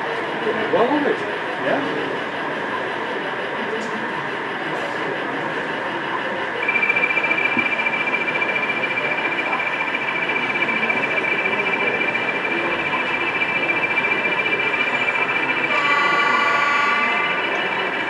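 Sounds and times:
exhibition hall background noise: 0:00.0 - 0:18.0
model locomotive whine: 0:01.7 - 0:18.0.

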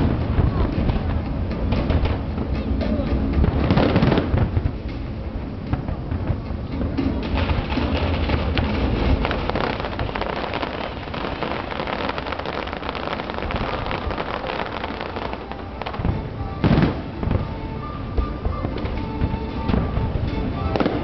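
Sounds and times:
fireworks crackling: 0:00.0 - 0:21.0
loud firework bang: 0:07.2 - 0:17.6.

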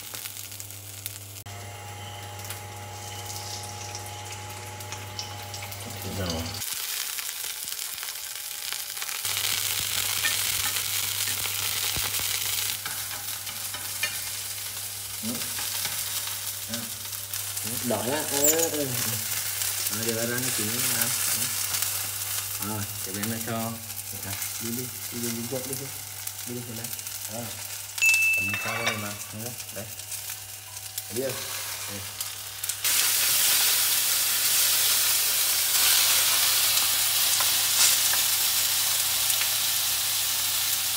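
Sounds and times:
onions sizzling in a pan: 0:00.0 - 0:40.9
high beep: 0:28.0 - 0:29.2.

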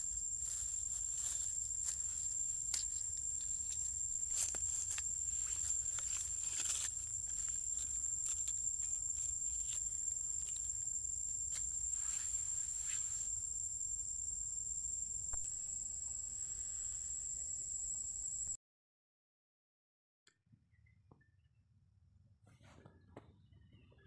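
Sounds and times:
insects droning: 0:00.0 - 0:18.6
soft rustles and clicks: 0:00.4 - 0:10.8.

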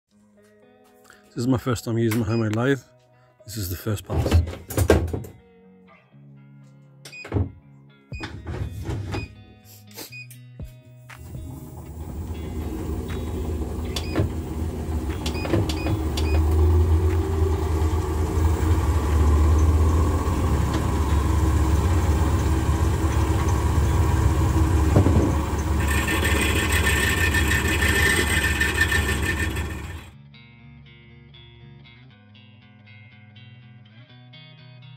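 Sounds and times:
lathe humming: 0:11.3 - 0:30.1
cutting tool scraping metal: 0:25.6 - 0:30.1.

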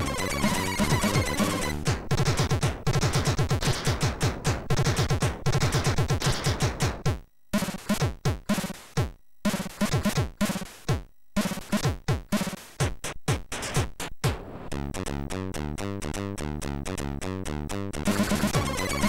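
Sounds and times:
chiptune music: 0:00.0 - 0:03.4, 0:14.7 - 0:19.0.

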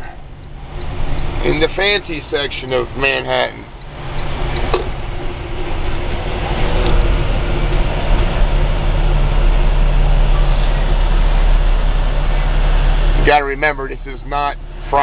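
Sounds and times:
road noise: 0:00.0 - 0:15.0
truck engine from inside cab: 0:00.0 - 0:15.0.

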